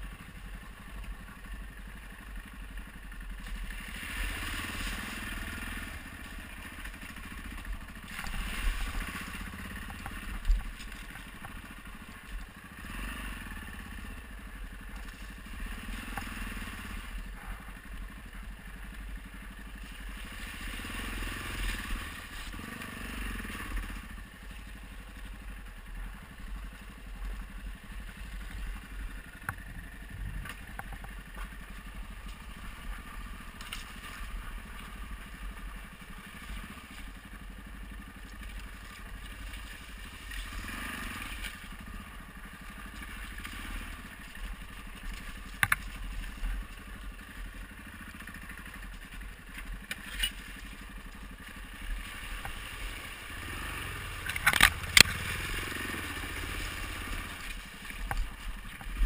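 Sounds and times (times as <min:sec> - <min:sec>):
motorcycle engine running: 0:00.0 - 0:59.0
tyres crunching on rocks: 0:08.0 - 0:12.6, 0:48.9 - 0:59.0.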